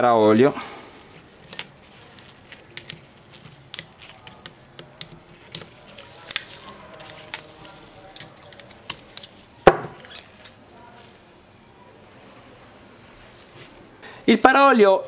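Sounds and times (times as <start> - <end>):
screwdriver clicking on metal clip: 0.6 - 1.8, 2.4 - 9.4.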